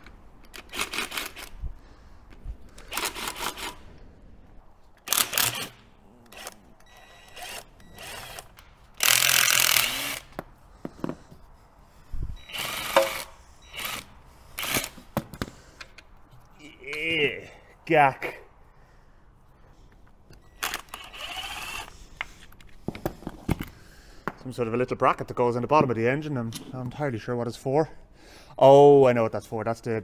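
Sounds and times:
cordless power tool bursts: 5.0 - 10.4, 12.5 - 15.1, 20.6 - 21.9.

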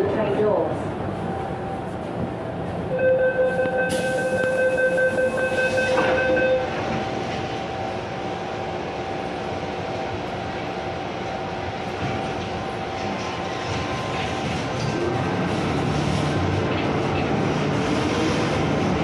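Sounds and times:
train car hum: 0.0 - 19.0
train door warning tone: 2.9 - 8.1
train doors shutting: 3.0 - 7.7.

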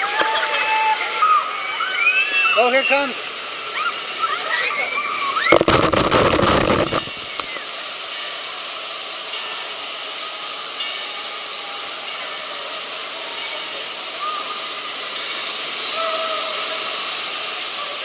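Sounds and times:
water spraying and running: 0.0 - 18.0
water bucket crashing down: 5.4 - 7.2.

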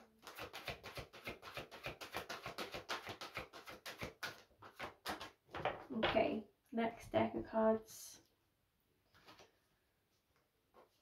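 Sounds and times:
cards being shuffled by hand: 0.2 - 5.8.

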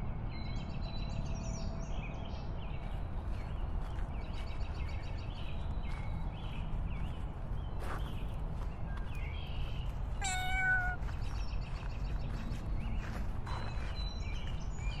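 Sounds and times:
cat meowing: 10.2 - 11.0.

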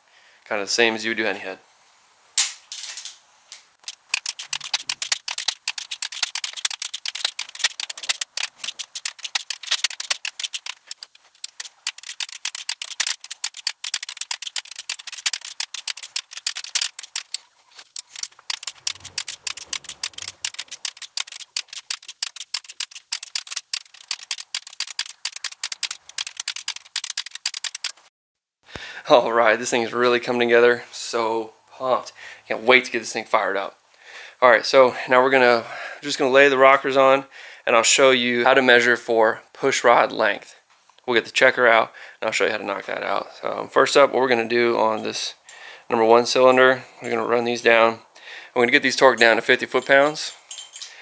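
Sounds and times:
ratchet wrench clicking: 3.8 - 17.4, 18.0 - 28.0.

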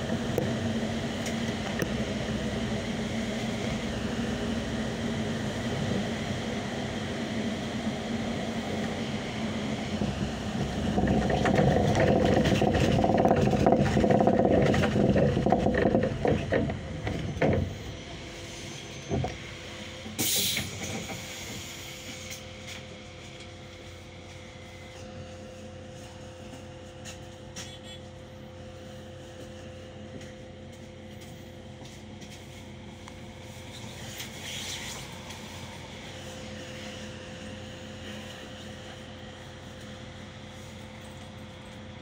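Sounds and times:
bus running noise: 0.0 - 42.0
short air hiss: 20.2 - 22.3.

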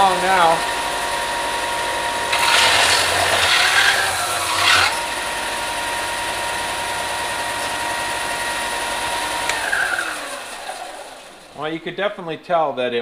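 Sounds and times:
electric sander running: 0.0 - 12.0
metal grinding rasp: 2.3 - 5.1.

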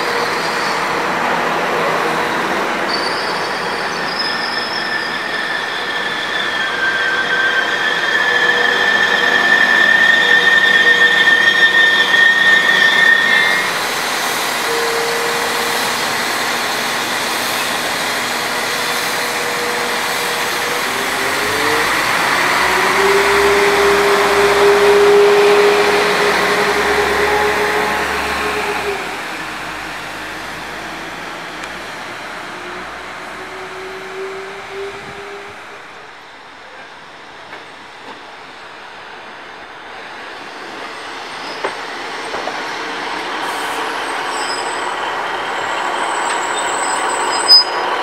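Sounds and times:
train wheel squeal: 0.0 - 29.4, 40.2 - 48.0
train wheel rumble: 13.7 - 38.7.

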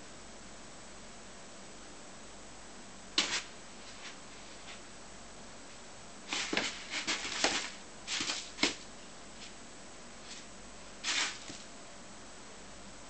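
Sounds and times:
kitten scratching in cat litter: 3.2 - 4.9, 6.2 - 9.6, 10.2 - 11.7.

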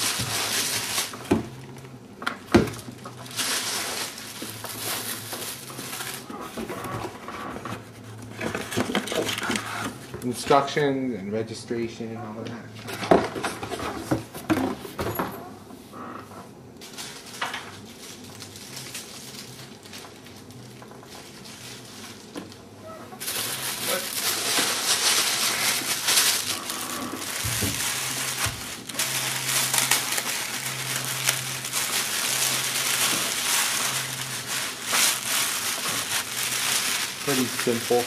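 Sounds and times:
plastic bag crinkling: 0.0 - 2.0, 2.7 - 6.9, 16.8 - 38.0.

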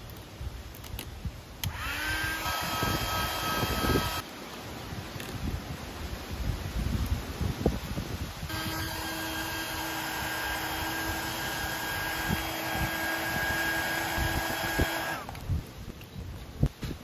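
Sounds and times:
heat gun whirring: 1.6 - 4.2, 8.5 - 15.4.

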